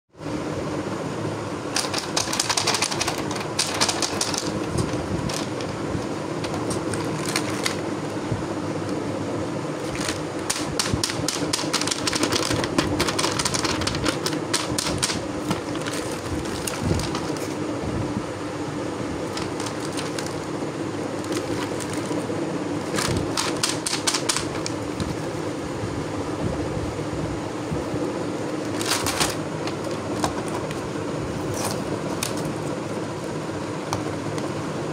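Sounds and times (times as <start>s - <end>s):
low background hum: 0.1s - 34.9s
plastic window crinkling: 1.8s - 7.9s, 9.8s - 17.6s, 19.2s - 20.5s.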